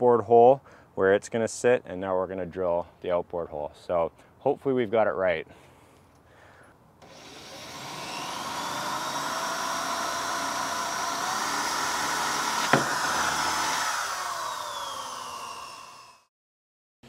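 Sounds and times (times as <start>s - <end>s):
electric drill whining: 7.0s - 16.3s.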